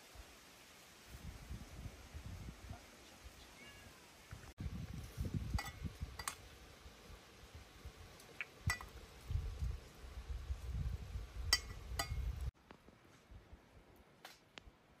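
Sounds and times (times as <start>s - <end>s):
utensils and dishes clinking: 5.6s - 6.4s.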